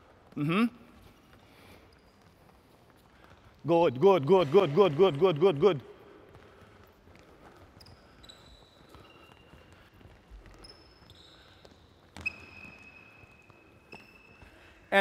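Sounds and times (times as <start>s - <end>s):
footsteps running on hall floor: 0.0s - 14.9s
high shoe squeaks: 7.7s - 14.7s.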